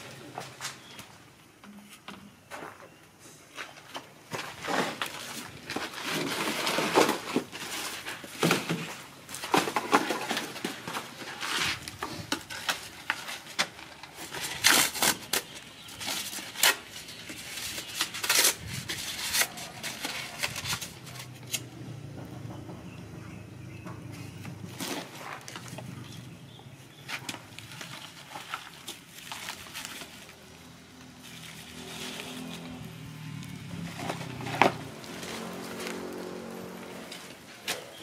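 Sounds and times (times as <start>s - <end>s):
coconut husks rustling and scraping: 0.0s - 23.0s, 23.7s - 38.0s.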